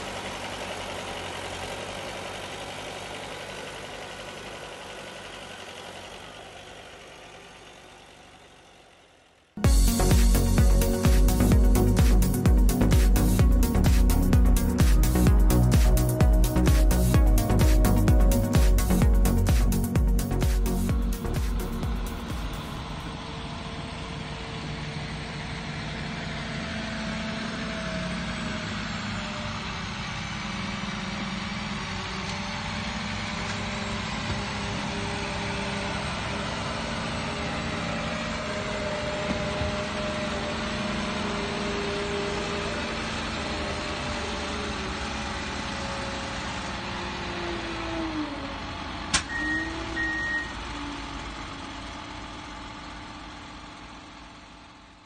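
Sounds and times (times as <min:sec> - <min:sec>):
diesel engine under load: 0:00.0 - 0:55.0
whine shifting in pitch: 0:09.6 - 0:24.0, 0:49.1 - 0:51.3
short high beeps: 0:49.3 - 0:50.6.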